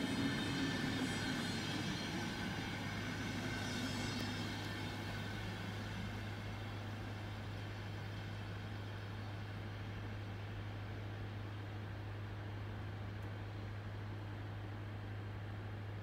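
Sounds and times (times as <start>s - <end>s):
train wheels rolling on rails: 0.0s - 9.6s.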